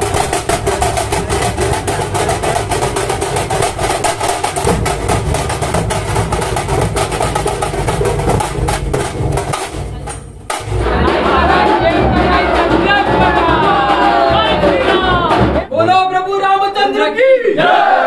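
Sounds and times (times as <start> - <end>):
deep drum beats: 0.0 - 16.0
fast drumming: 0.0 - 16.0.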